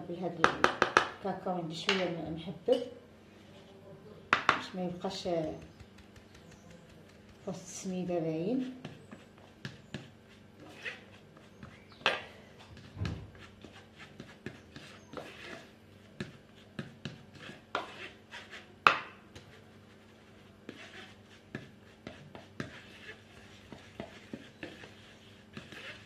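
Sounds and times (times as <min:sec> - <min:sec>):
spoon scraping in plastic sieve: 0:19.4 - 0:26.0.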